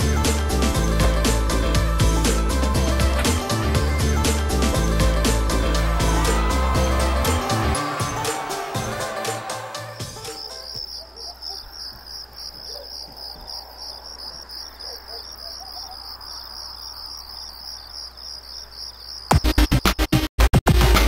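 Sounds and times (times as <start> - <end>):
loud electronic music: 0.0 - 10.7
crickets chirping: 9.7 - 20.0.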